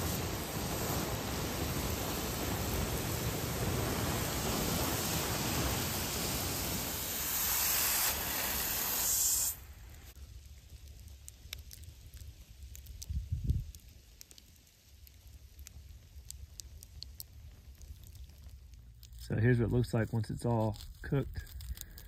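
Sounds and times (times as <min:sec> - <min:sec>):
hose spray and steam hissing: 0:00.0 - 0:10.1.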